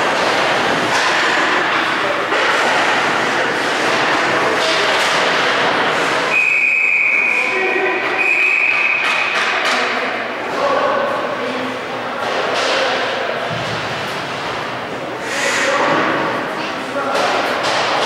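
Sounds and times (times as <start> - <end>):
players' voices: 0.1 - 18.0
referee's whistle blasts: 6.3 - 7.6, 8.2 - 9.2.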